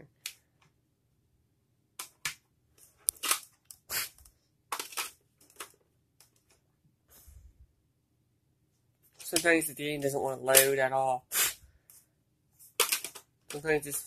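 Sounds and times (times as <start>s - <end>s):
handling rustling and scraping: 2.7s - 7.5s, 11.8s - 14.0s.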